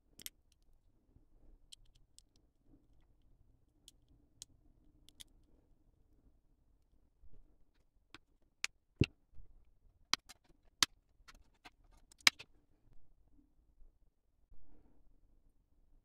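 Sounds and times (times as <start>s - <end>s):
plastic model parts clicking: 0.2s - 0.6s, 10.2s - 10.5s, 11.3s - 12.4s.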